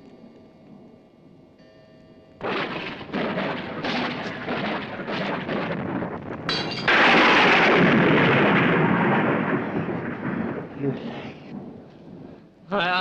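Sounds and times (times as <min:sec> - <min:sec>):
thunder rumbling and cracking: 0:02.4 - 0:12.7.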